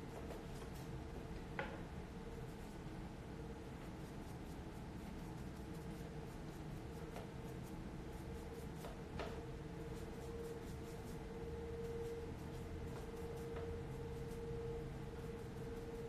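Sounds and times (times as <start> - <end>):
faint hum: 0.0 - 16.0
paintbrush scratching: 2.4 - 2.9, 3.7 - 9.0, 9.9 - 16.0.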